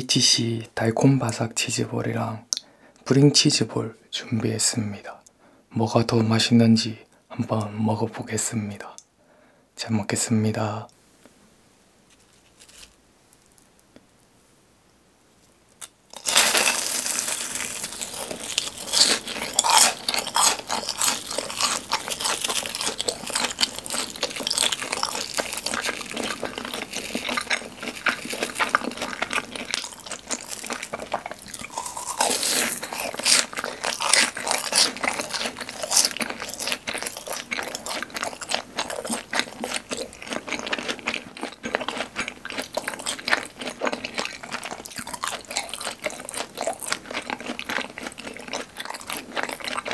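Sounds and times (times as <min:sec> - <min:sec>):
crunching and chewing: 0:12.1 - 0:14.0, 0:15.8 - 0:49.9.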